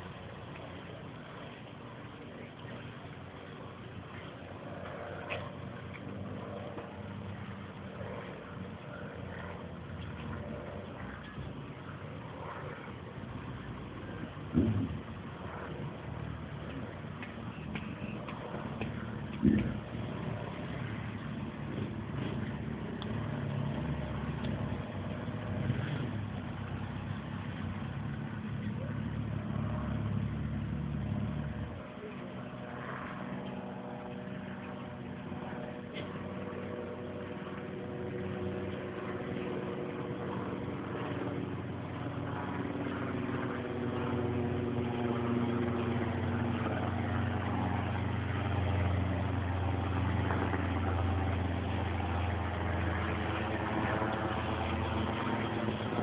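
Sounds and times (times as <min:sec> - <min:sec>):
lorry diesel engine rumbling: 0:00.0 - 0:32.4.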